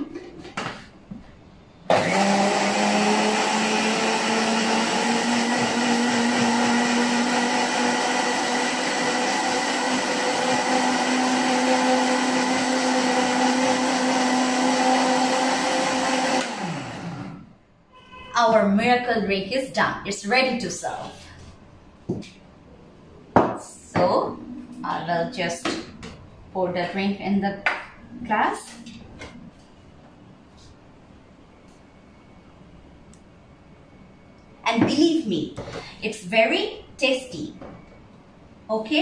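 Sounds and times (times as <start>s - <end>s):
blender winding down: 1.9s - 17.4s
blender motor hum: 1.9s - 17.5s.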